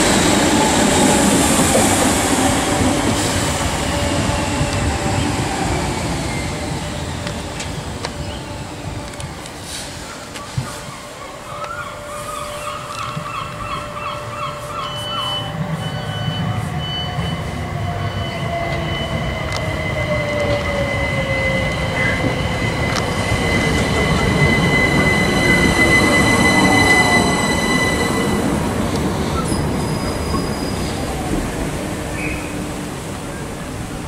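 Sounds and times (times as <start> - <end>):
train wheels rumbling: 0.0 - 34.0
high squeal: 9.7 - 32.6.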